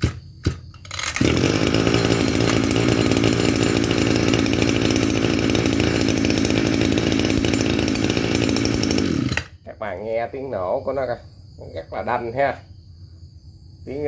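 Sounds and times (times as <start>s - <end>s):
recoil starter pull: 0.0s - 9.6s
two-stroke engine running: 0.0s - 9.6s.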